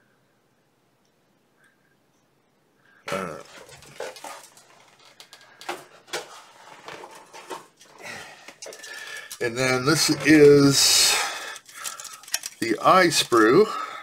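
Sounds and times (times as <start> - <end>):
plastic sprues clattering: 3.1 - 13.8.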